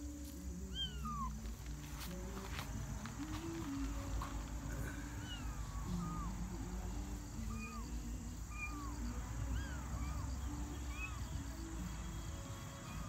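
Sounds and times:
kittens mewing: 0:00.6 - 0:01.4, 0:04.6 - 0:11.2.

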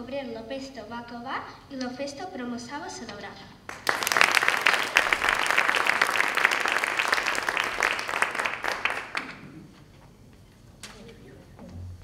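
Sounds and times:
audience clapping: 0:03.7 - 0:09.6.

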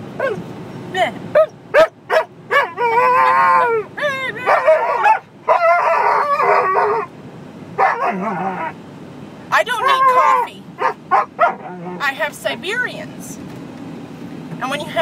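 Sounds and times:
dogs yipping: 0:00.2 - 0:00.5, 0:01.3 - 0:07.1, 0:07.8 - 0:08.8, 0:09.6 - 0:12.0
dogs howling: 0:01.4 - 0:07.1, 0:07.8 - 0:08.8, 0:09.7 - 0:12.0.

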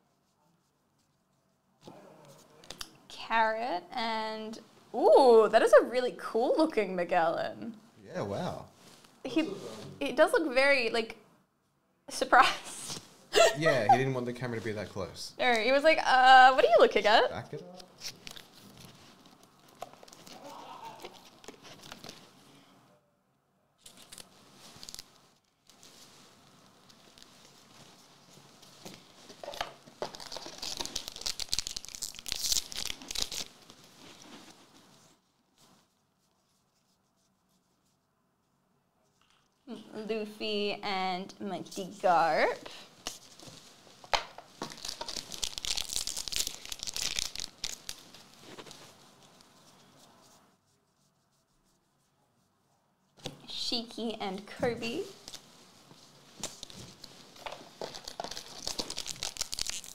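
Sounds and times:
trading cards and wrappers rustling: 0:17.8 - 0:22.5, 0:23.8 - 0:36.0, 0:42.5 - 0:50.5, 0:54.9 - 0:59.9.

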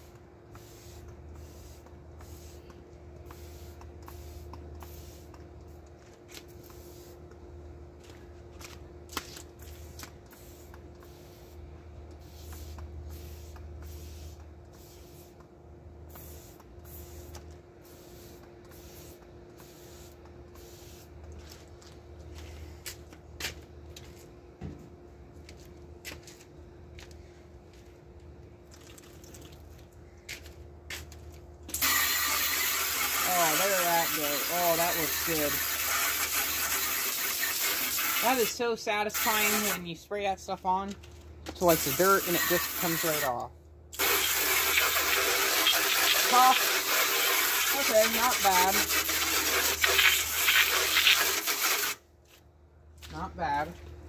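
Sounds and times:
steady low hum: 0:00.0 - 0:31.8, 0:52.0 - 0:54.0
hose water hissing on metal case: 0:31.7 - 0:39.8, 0:41.6 - 0:43.4, 0:44.0 - 0:52.0
spray bottle squirting: 0:31.7 - 0:39.8, 0:41.7 - 0:43.3, 0:43.9 - 0:52.0.

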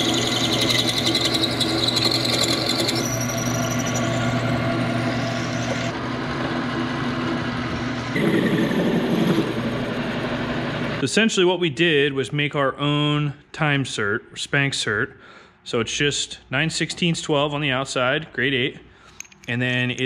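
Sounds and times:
drill bit squealing in steel: 0:00.0 - 0:05.9
metal lathe running: 0:00.0 - 0:11.0.

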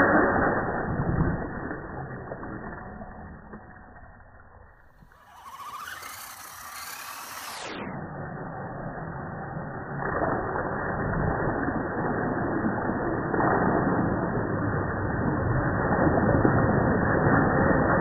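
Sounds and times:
toy truck electric motor: 0:02.8 - 0:07.8
tyres churning through mud: 0:05.0 - 0:07.7.

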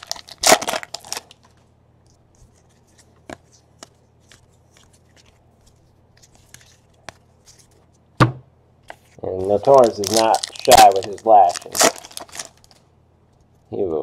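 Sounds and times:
foil wrapper crinkling and tearing: 0:00.0 - 0:01.6, 0:09.3 - 0:12.8.

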